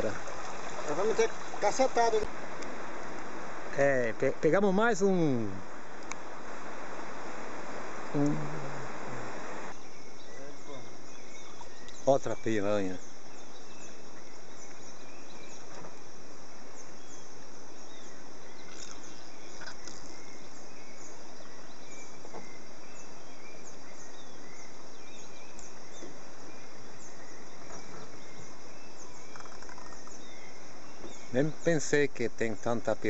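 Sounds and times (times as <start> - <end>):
faint knocks or splashes: 0.0 - 2.3
even hiss: 0.0 - 33.0
insects and birds chirping: 0.0 - 33.0.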